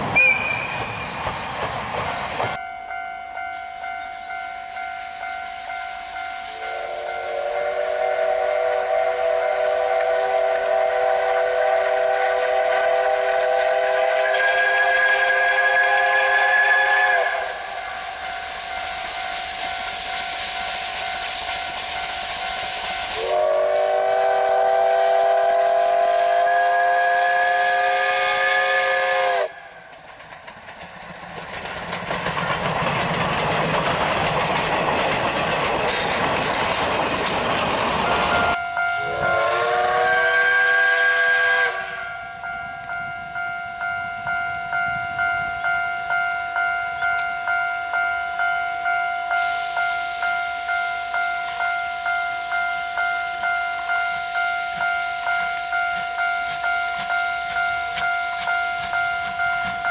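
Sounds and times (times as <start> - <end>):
steam whistle: 0.0 - 1.6, 3.9 - 29.9, 37.9 - 43.0, 46.5 - 59.9
locomotive hissing steam: 0.0 - 2.6, 3.3 - 59.9
steam exhaust chuffs: 0.0 - 2.6, 4.4 - 45.8
locomotive running noise: 0.0 - 45.8, 53.5 - 59.9.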